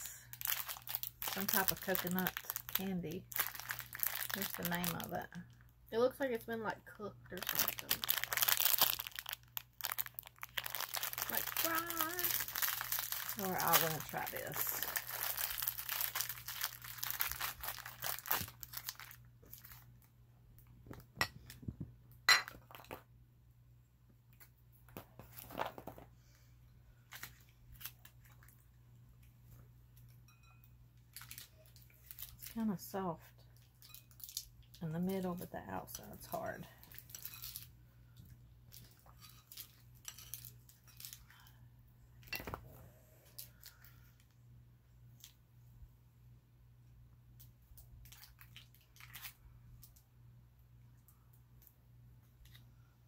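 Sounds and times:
plastic candy wrapper crinkling: 0.0 - 21.6, 24.4 - 26.1, 27.0 - 28.8, 31.0 - 41.6, 43.4 - 44.4, 47.4 - 50.1.

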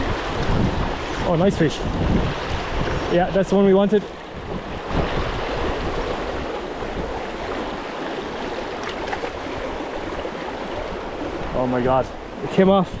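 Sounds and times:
river water rushing over stones: 0.0 - 12.7
wind on microphone: 0.0 - 13.0.

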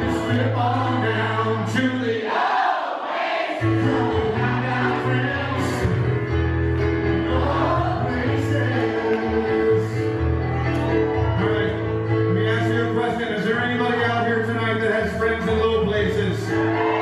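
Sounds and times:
piano-bar music: 0.0 - 2.3, 3.6 - 17.0
voices singing together: 0.0 - 10.6.

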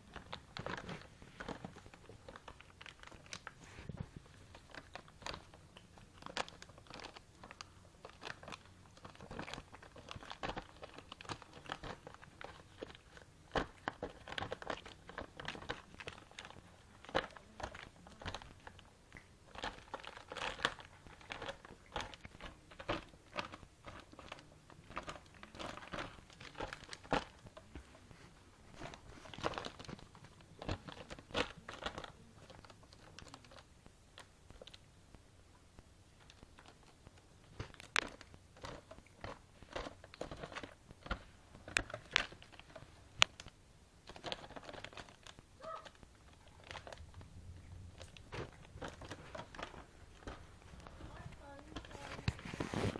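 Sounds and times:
plastic wrap crinkling: 0.0 - 52.9.

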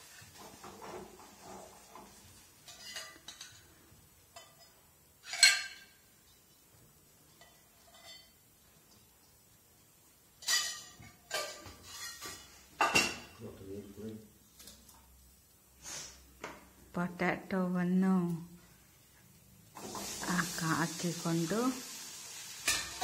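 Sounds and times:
kitchen utensils clinking: 0.2 - 6.6, 7.2 - 8.5, 10.3 - 13.4, 19.8 - 21.0, 22.5 - 23.0.

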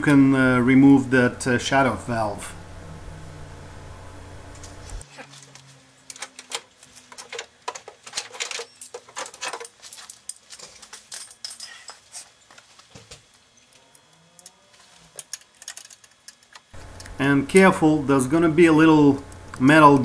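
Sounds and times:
hand tools clicking and clinking: 5.5 - 12.7, 13.8 - 17.1.

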